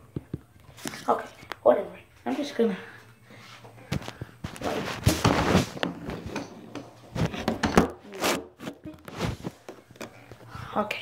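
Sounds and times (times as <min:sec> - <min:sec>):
rubbing against microphone: 0:04.4 - 0:06.3, 0:08.0 - 0:09.6.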